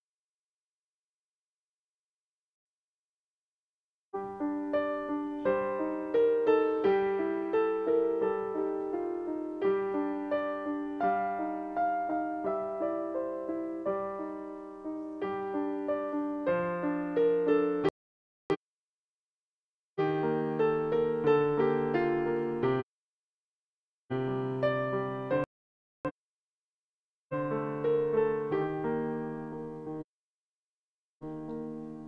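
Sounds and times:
piano playing chords and melody: 4.2 - 18.0, 20.0 - 22.9, 24.1 - 26.2, 27.3 - 30.1, 31.2 - 32.0.

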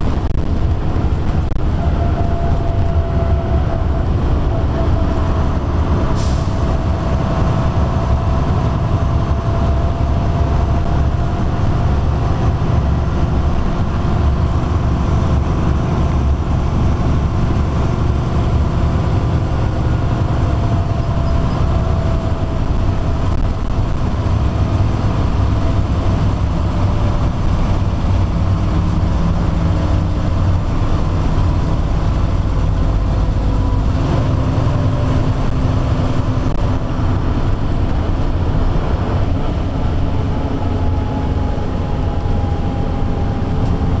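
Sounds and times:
bus diesel engine drone: 0.0 - 44.0.

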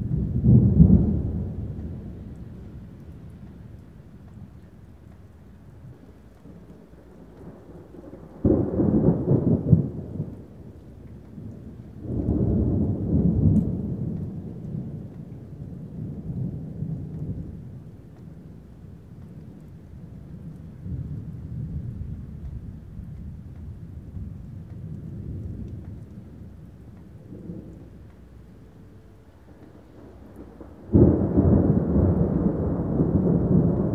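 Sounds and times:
steady low rumble: 0.0 - 33.9
thunder clap: 0.0 - 33.9
thunder rumbling peal: 0.0 - 33.9.

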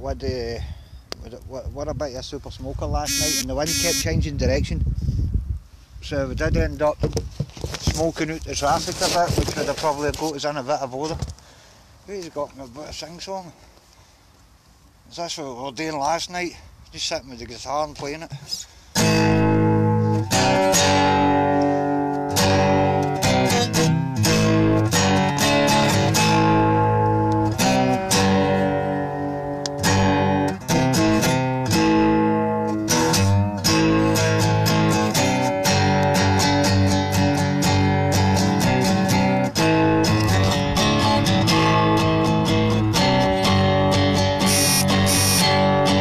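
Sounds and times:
acoustic guitar strumming chords: 3.1 - 4.0, 19.0 - 46.0.

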